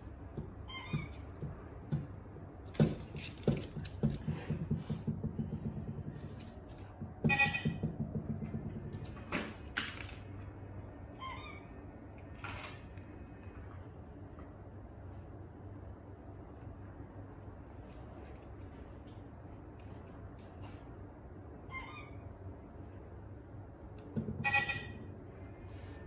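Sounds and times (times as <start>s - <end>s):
plastic toy knocking on hardwood floor: 2.8s - 9.1s.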